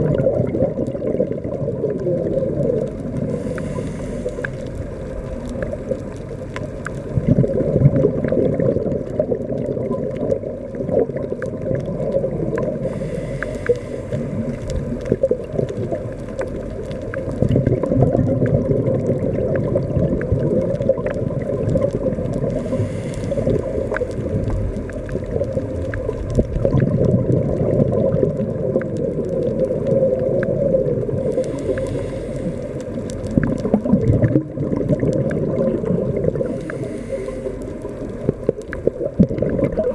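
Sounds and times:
regulator bubbles gurgling underwater: 0.0s - 39.9s
faint breath hiss: 3.0s - 7.2s, 12.5s - 15.2s, 22.4s - 25.3s, 31.0s - 33.2s, 36.1s - 38.6s
small clicks: 31.2s - 39.0s.

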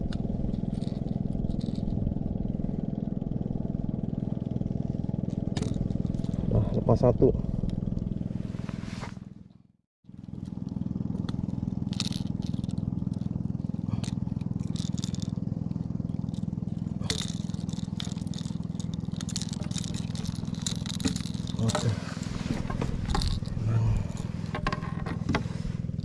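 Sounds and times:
plastic lure on wooden deck: 0.0s - 2.1s, 5.2s - 7.0s, 10.1s - 26.0s
boat engine running: 0.0s - 26.0s.

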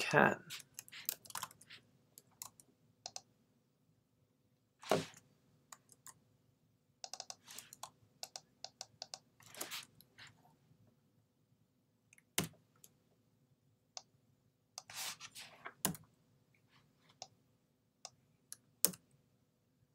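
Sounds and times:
keyboard typing: 0.5s - 3.3s, 7.0s - 9.8s.

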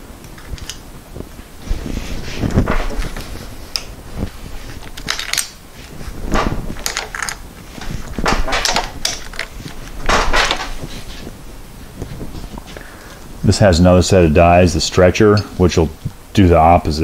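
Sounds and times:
metal shrinker clanks and crunches: 6.3s - 11.1s.

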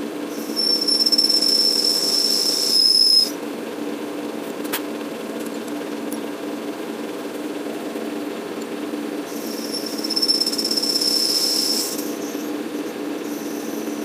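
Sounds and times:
cutting tool high squeal: 0.3s - 3.4s, 9.3s - 14.0s
metal lathe humming: 0.3s - 3.9s, 7.6s - 14.0s.

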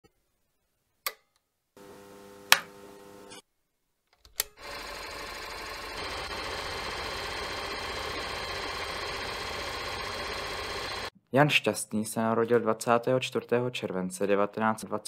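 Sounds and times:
projector mechanical clatter: 4.6s - 11.1s
steady hum: 5.4s - 11.1s.

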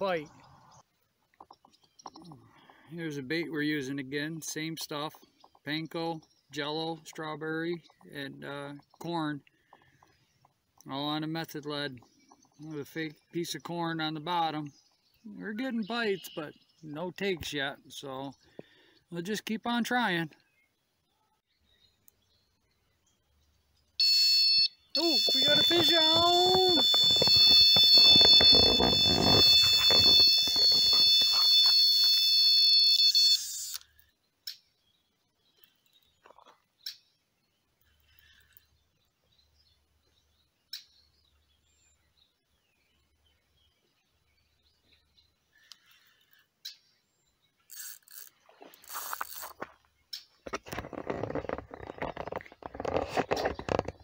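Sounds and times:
bite alarm high-pitched tone: 24.0s - 33.6s
rustling: 25.0s - 32.6s
camera clattering and knocking: 50.4s - 54.0s.

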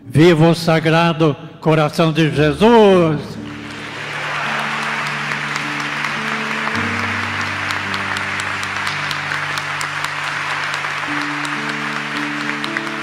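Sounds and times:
crowd applauding: 3.4s - 13.0s
instrumental music of sustained chords: 3.4s - 13.0s.

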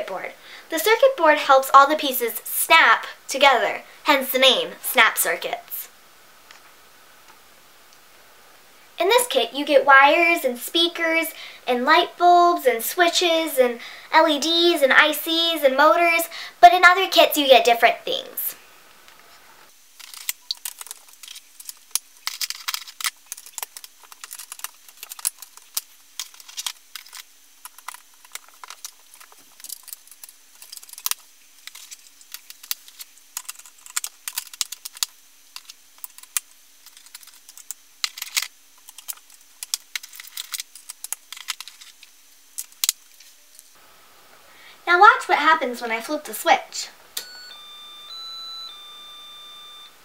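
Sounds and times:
plastic pieces clicking and clattering: 20.0s - 43.8s.

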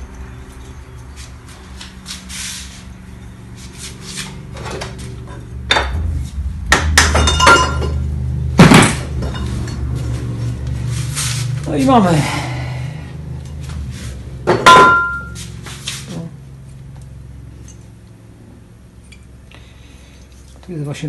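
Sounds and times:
steady low hum: 0.0s - 20.7s
metallic knocks and clinks: 7.0s - 9.9s.

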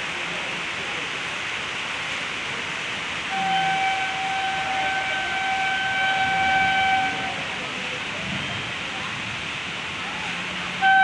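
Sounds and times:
heavy rain hissing: 0.0s - 11.0s
train horn long note: 3.3s - 7.6s, 10.8s - 11.0s.

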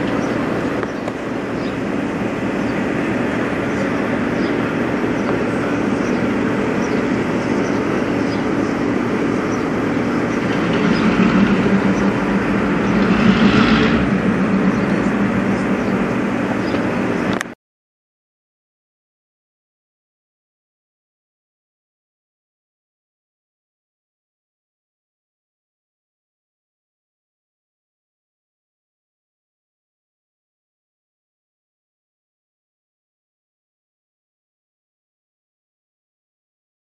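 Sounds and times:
diesel locomotive engine drone: 0.0s - 17.6s.

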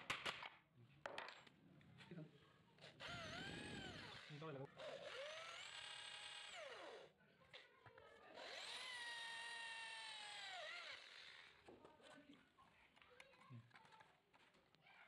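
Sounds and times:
electric drill whining: 2.8s - 7.1s, 8.3s - 11.7s.

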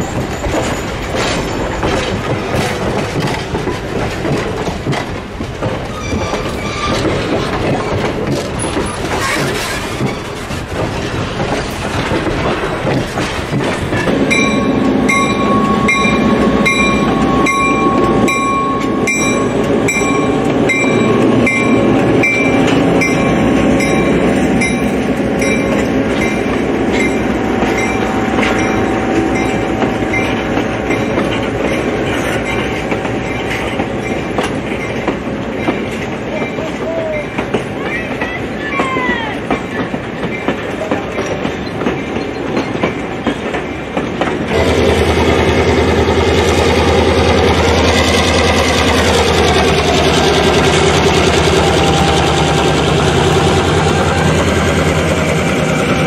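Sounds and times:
train wheels clattering: 0.0s - 56.0s
bell ringing: 14.3s - 31.9s.

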